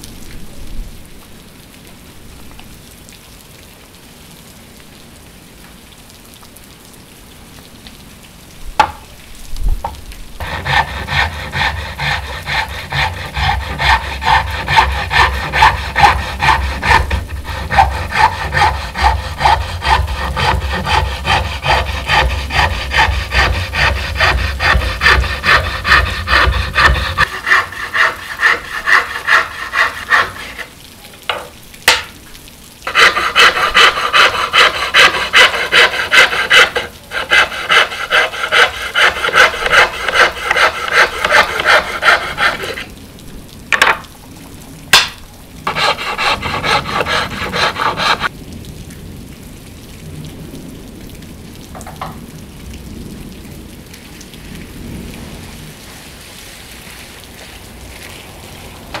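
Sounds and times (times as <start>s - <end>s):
sharp knocks: 8.8s - 9.0s
file rasping on wood: 10.4s - 30.7s, 32.9s - 42.9s, 45.7s - 48.3s.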